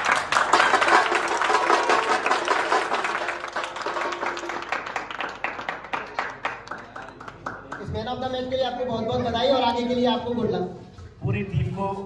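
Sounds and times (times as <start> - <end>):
people clapping: 0.0 - 8.4.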